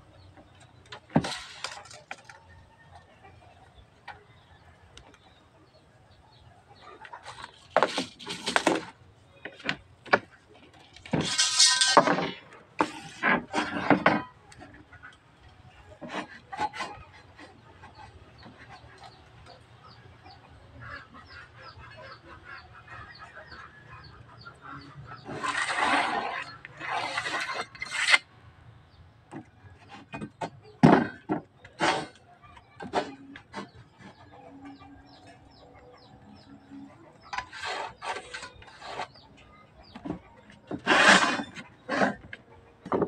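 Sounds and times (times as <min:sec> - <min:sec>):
pencil scratching: 0:25.3 - 0:28.2.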